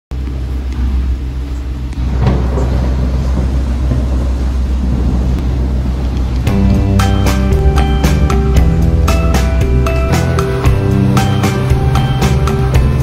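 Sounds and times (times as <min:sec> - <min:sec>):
boat engine humming: 0:00.1 - 0:13.0
music: 0:06.4 - 0:13.0.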